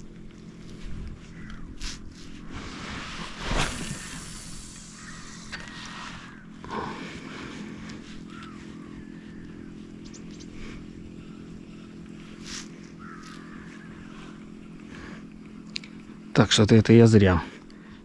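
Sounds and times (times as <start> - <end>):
low motor drone: 0.0 - 18.0
faint squeaks and ticks: 8.2 - 10.6.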